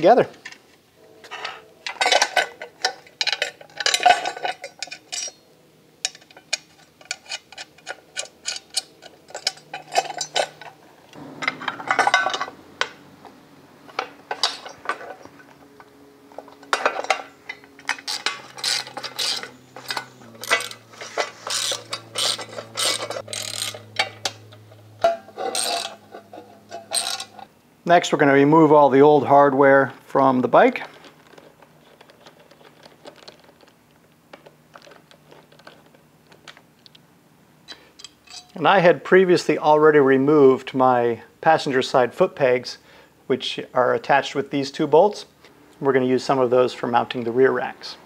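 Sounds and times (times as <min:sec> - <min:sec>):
small hardware clinking: 0:01.2 - 0:05.4, 0:06.0 - 0:13.0, 0:16.3 - 0:27.5, 0:37.7 - 0:38.6
socket ratchet clicking: 0:17.9 - 0:24.0.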